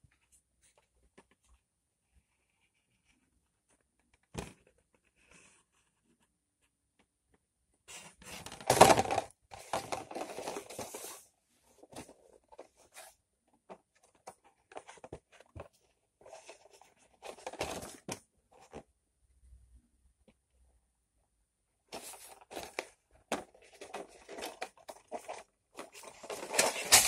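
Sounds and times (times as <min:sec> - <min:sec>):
cardboard boxes rustling and scraping: 0:07.9 - 0:13.2, 0:13.8 - 0:18.7, 0:21.9 - 0:27.0.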